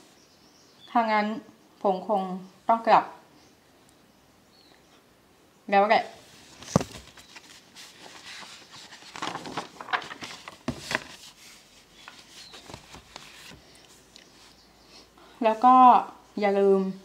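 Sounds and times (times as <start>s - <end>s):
short rustling: 6.2s - 14.6s.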